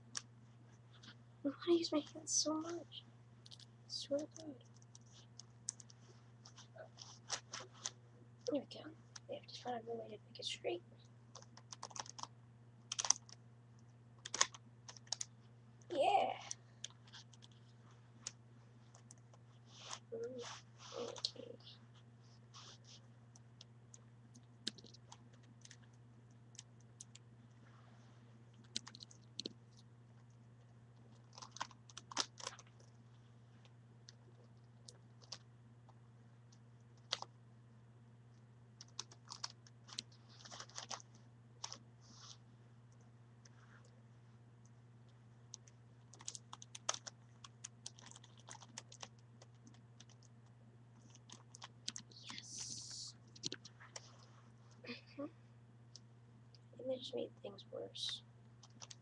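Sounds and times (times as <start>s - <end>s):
low steady hum: 0.0s - 59.0s
rustling scrape: 19.6s - 21.2s.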